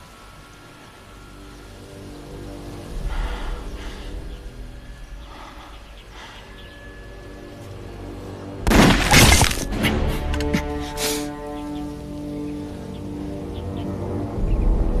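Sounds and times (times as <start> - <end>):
dramatic orchestral score: 0.0 - 15.0
gunfire: 8.7 - 9.7
bullets cracking into wood: 8.7 - 9.8.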